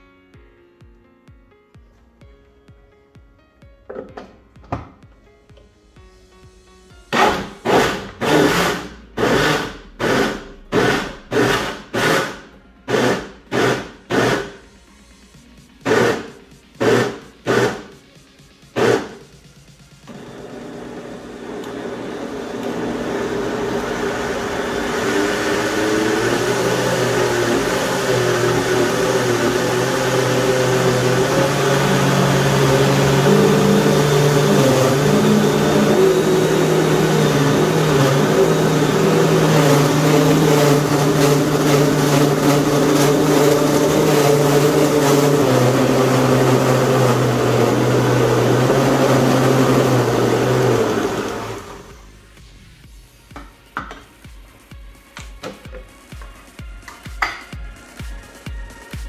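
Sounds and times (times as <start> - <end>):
blender motor running: 7.1 - 14.6, 15.8 - 18.0, 18.7 - 19.3, 20.1 - 52.0.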